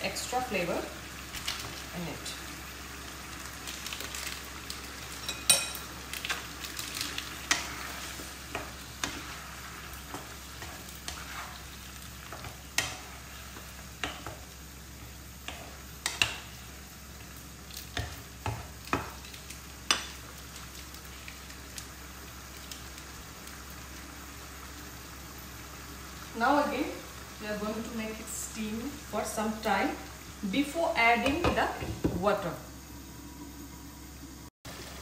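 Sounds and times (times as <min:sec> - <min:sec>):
meat sizzling in a frying pan: 0:00.0 - 0:33.1, 0:34.0 - 0:35.0
spatula tapping and scraping pan: 0:07.4 - 0:09.4, 0:12.2 - 0:14.4, 0:15.4 - 0:16.5, 0:17.9 - 0:19.2.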